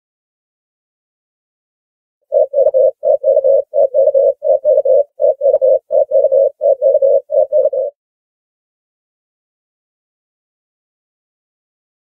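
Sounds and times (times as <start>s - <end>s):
dove cooing: 2.3s - 8.0s.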